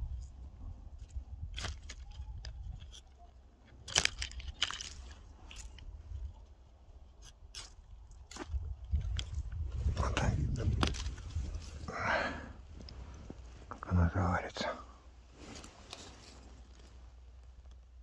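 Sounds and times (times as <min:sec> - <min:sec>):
knife cracking bark: 0:01.1 - 0:05.9, 0:07.1 - 0:09.4
low rumble: 0:08.6 - 0:14.0.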